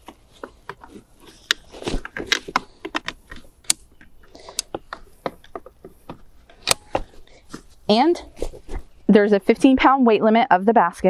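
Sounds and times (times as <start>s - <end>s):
plastic clicks and knocks: 0.0s - 7.2s.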